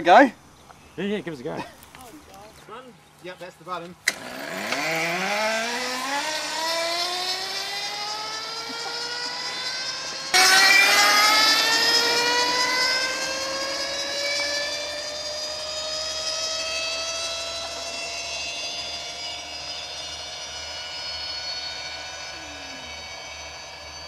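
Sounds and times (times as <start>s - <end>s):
starter motor whining: 4.0s - 24.0s.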